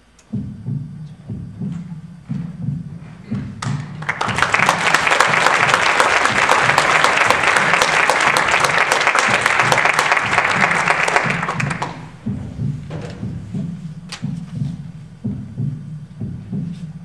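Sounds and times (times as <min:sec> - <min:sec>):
audience applauding: 0:03.6 - 0:12.2.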